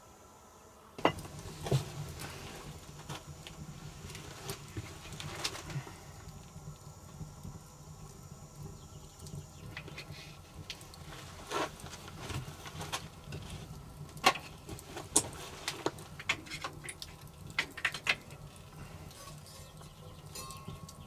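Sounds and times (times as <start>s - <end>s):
wood fire crackling: 0.9s - 21.0s.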